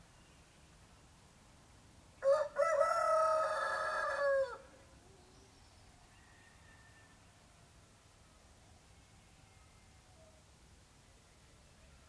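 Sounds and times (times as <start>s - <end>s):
faint birdsong: 0.0s - 2.4s, 4.0s - 12.0s
rooster crowing: 2.2s - 4.7s, 6.1s - 7.3s.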